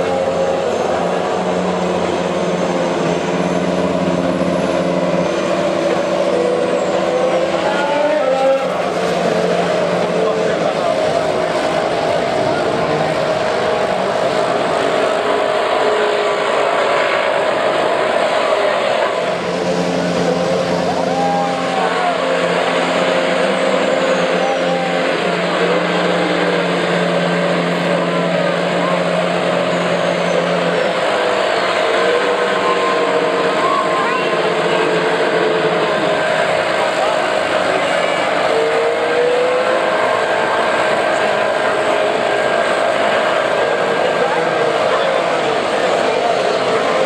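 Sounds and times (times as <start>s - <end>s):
dense background din: 0.0s - 47.0s
engine revving: 0.0s - 47.0s
racing car engines idling: 0.0s - 47.0s.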